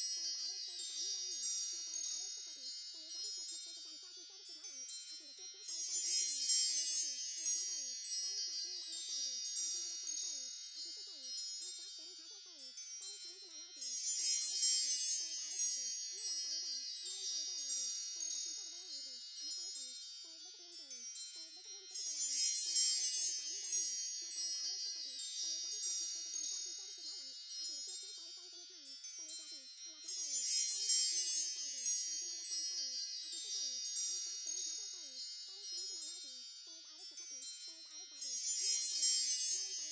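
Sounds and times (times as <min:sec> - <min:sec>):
high tinkling chimes: 0:00.0 - 0:39.9.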